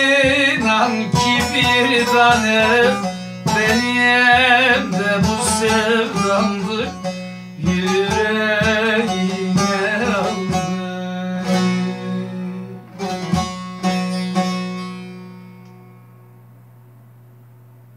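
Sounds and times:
man singing wavering notes: 0.0s - 14.0s
long-necked lute strummed: 0.0s - 16.8s.

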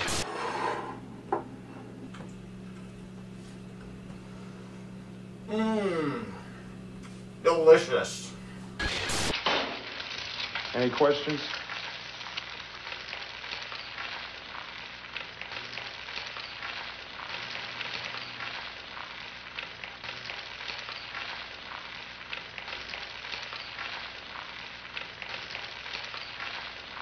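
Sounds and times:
faint low hum: 0.0s - 9.1s
egg sizzling in a hot pan: 8.7s - 27.0s.

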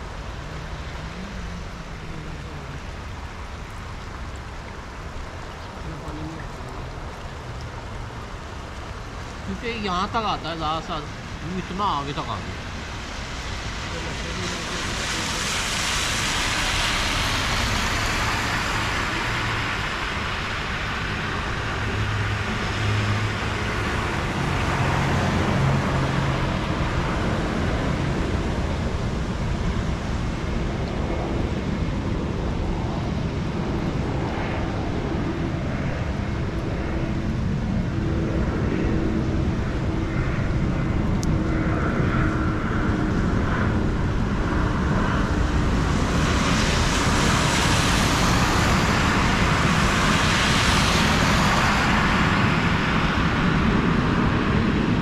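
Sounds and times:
low traffic rumble: 0.0s - 55.0s
car tyres hissing through water: 12.9s - 21.8s.

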